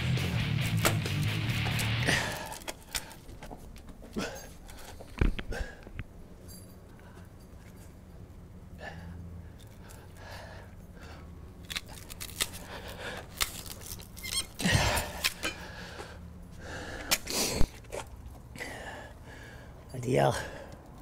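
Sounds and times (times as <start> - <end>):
bolt cutters snapping strap: 0.7 - 3.2, 11.6 - 15.6.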